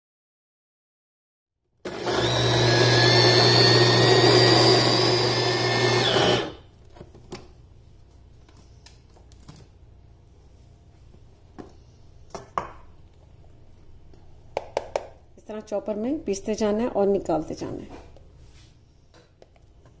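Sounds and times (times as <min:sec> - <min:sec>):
electric food chopper motor whining: 0:01.8 - 0:06.6.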